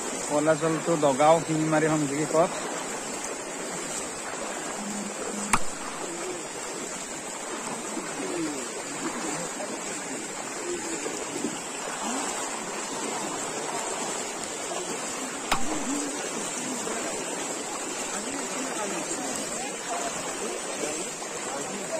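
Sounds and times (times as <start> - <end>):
floodwater rushing: 0.0 - 21.9
sharp click: 5.5 - 5.9, 15.5 - 15.9.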